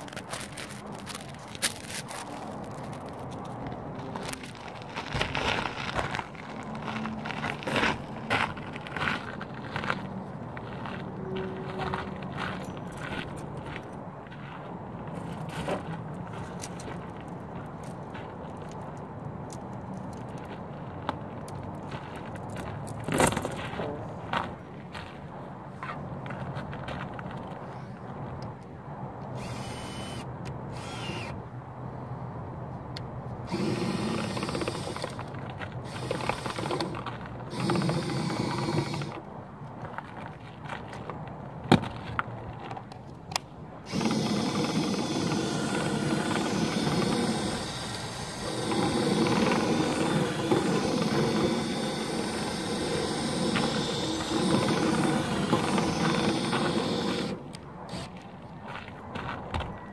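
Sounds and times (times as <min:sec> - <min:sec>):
cordless drill spinning rod in duct: 0:33.5 - 0:39.2, 0:43.9 - 0:58.0.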